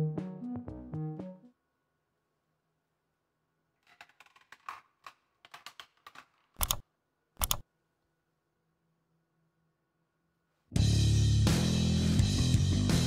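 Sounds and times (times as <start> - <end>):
sharp clicks: 5.6 - 6.8, 7.4 - 7.6.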